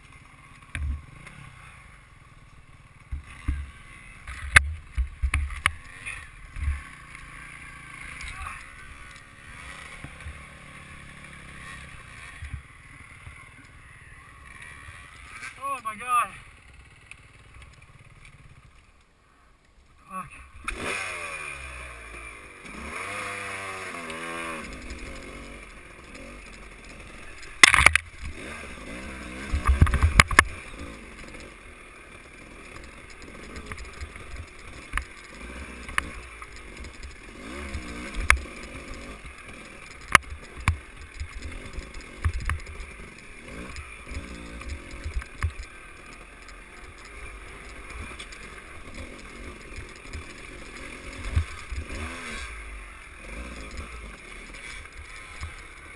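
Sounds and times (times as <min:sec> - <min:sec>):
dirt bike engine revving: 0:00.1 - 0:18.8, 0:20.2 - 0:55.9
bike knocking on rocks: 0:27.4 - 0:28.4.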